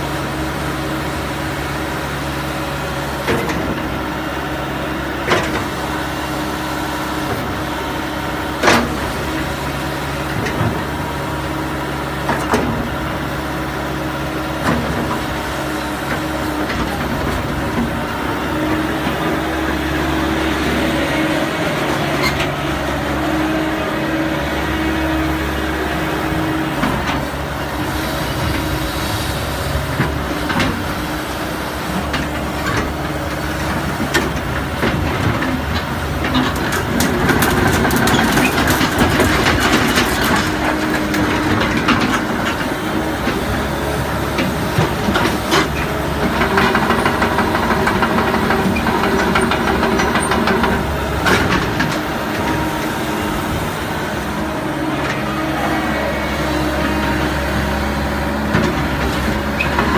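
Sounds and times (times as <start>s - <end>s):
excavator diesel engine running: 0.0s - 59.9s
hydraulics working: 0.0s - 59.9s
steel tracks clanking: 5.0s - 59.9s.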